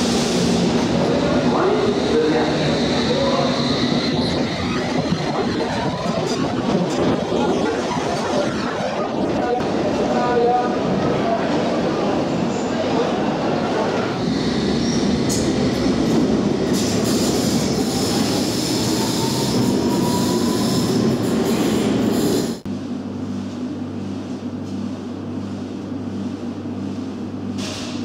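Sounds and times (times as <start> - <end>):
steady low hum: 22.7 - 28.0.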